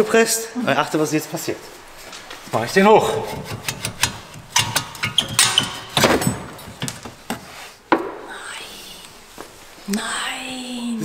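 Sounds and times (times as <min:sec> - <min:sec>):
metal knocks and clanks: 0:02.9 - 0:08.2.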